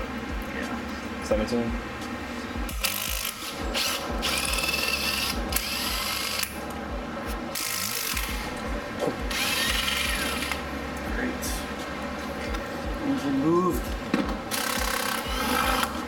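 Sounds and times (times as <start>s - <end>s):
cordless power tool spinning: 2.7s - 6.6s, 7.6s - 8.4s, 9.3s - 10.6s, 14.5s - 16.0s.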